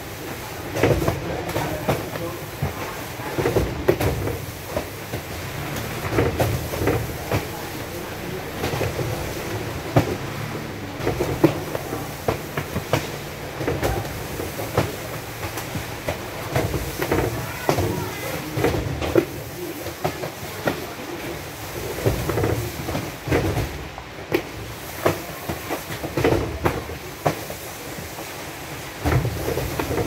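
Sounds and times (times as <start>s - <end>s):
cartons being handled: 0.0s - 30.0s
knocks and thumps: 0.6s - 30.0s.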